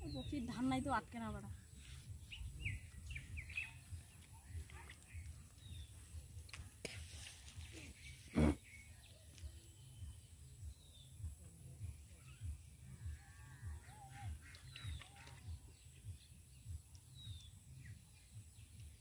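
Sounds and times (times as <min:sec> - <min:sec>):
bird chirps: 0:01.6 - 0:06.4, 0:07.2 - 0:19.0
soft low thuds: 0:09.8 - 0:13.8.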